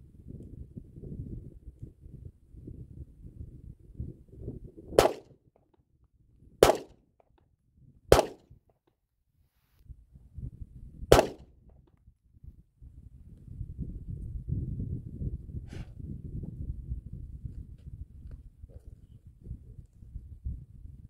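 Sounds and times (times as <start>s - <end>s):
pistol shots: 5.0s - 5.3s, 6.6s - 6.9s, 8.1s - 8.4s, 11.1s - 11.4s.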